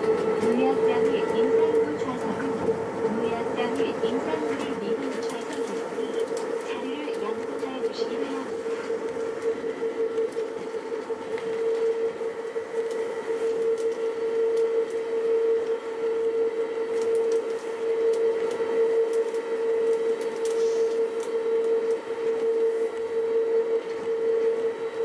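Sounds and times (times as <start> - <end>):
train running rumble: 0.0 - 14.1
train high-pitched whine: 0.0 - 25.0.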